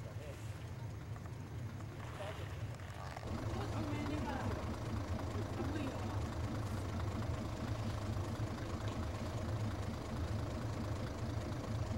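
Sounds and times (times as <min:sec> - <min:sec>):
diesel railcar engine idling: 0:03.1 - 0:11.9.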